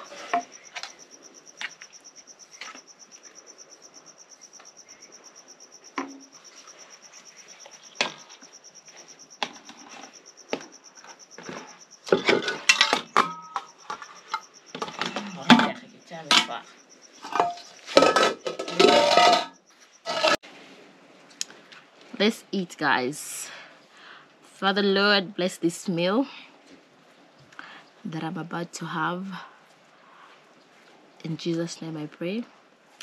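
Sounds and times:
cricket trilling: 0.0 - 20.4
bowls and lid clattering: 12.1 - 16.6, 17.2 - 20.4.

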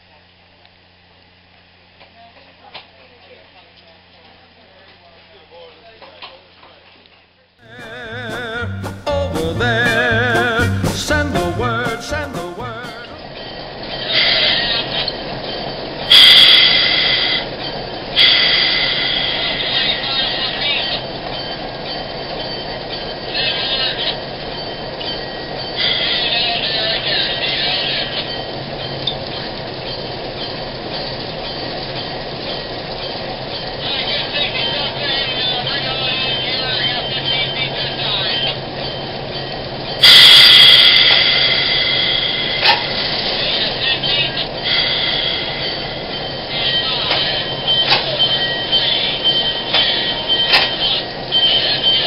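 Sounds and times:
thin high tone: 7.6 - 13.4, 40.0 - 52.0
diesel locomotive engine running: 7.6 - 21.6, 22.9 - 52.0
rail clatter: 9.1 - 52.0
wheels squealing: 13.3 - 52.0
train wheels rumbling on track: 14.1 - 51.9
sharp metal clanks: 40.0 - 43.3.

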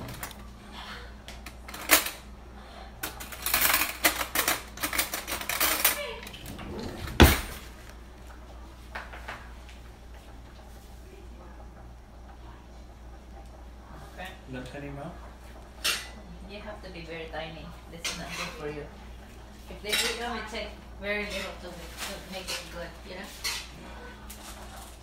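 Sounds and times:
low steady hum: 0.0 - 25.0
utensils and cookware clattering: 1.4 - 2.3, 3.0 - 7.7, 15.7 - 16.3, 17.9 - 18.9, 19.7 - 25.0.

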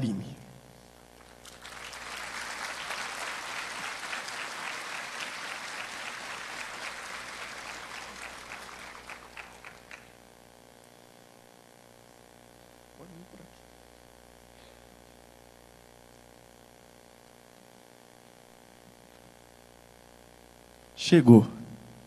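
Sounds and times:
audience applauding: 1.2 - 10.2.

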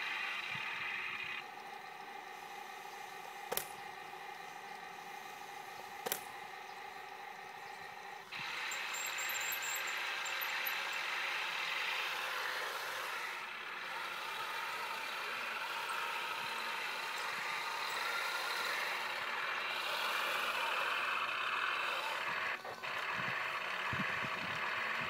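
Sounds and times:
motor running: 0.0 - 25.0
sharp click: 3.5 - 3.8, 6.0 - 6.3.

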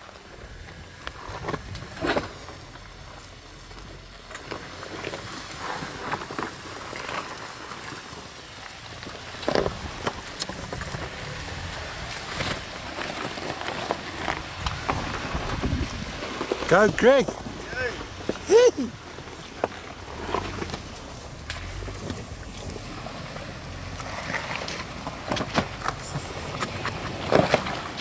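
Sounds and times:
low engine rumble: 0.0 - 28.0
tyres crunching on loose stones: 0.0 - 28.0.

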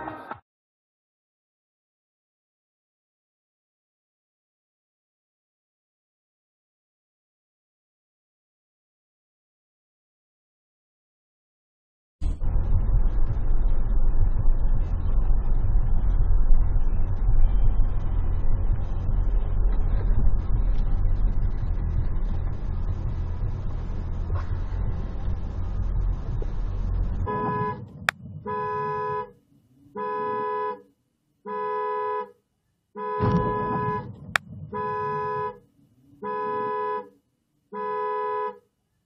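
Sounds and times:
road and tyre noise: 12.2 - 32.4, 33.0 - 38.9
car horn blasts: 27.2 - 29.3, 30.0 - 30.9, 31.5 - 32.4, 33.0 - 35.6, 36.2 - 38.7.

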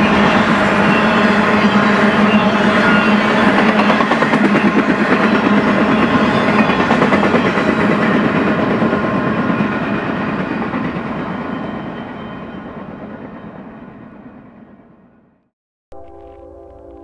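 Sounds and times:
train wheel clatter: 0.0 - 12.3
freight train rolling past: 0.0 - 15.3.

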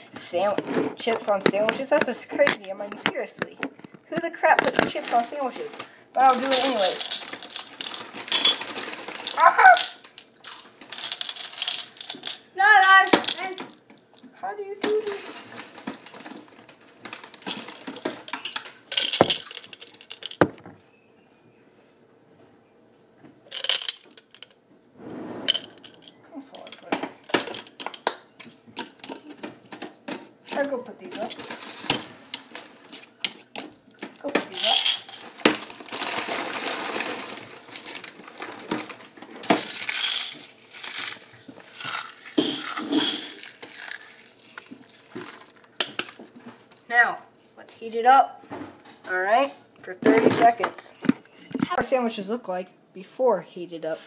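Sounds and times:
items knocking on a table: 20.3 - 20.8
potato chips crunching: 39.5 - 45.7.

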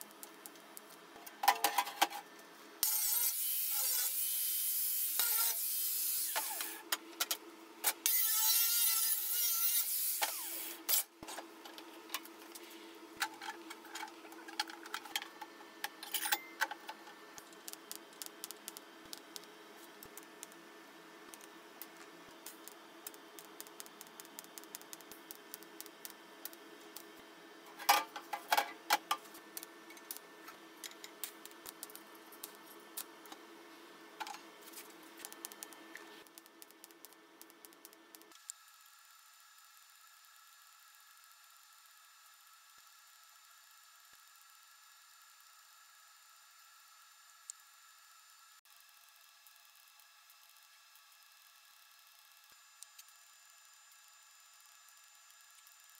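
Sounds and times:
welding crackles and ticks: 0.0 - 1.8, 16.6 - 20.6, 21.2 - 27.2, 28.9 - 33.4, 34.2 - 38.7, 48.7 - 55.9
welding hum: 0.0 - 39.7
angle grinder cutting steel: 2.8 - 6.8.

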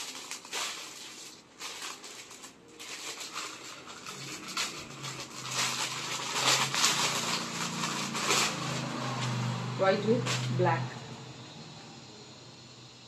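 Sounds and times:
plastic packet crinkling: 0.0 - 9.5.

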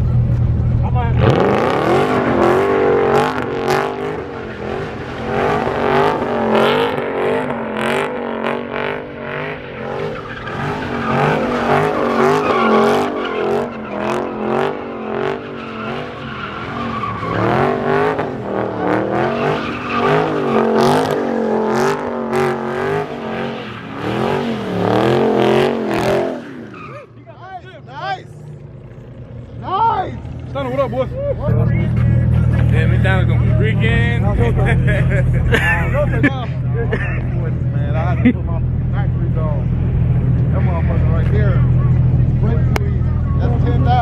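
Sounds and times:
car engine revving: 0.0 - 44.0
tyres screeching: 1.2 - 28.3.

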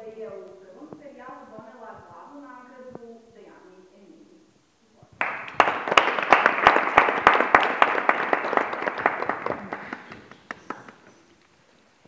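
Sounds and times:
audience applauding: 5.2 - 11.3
sharp individual claps: 5.2 - 11.3.

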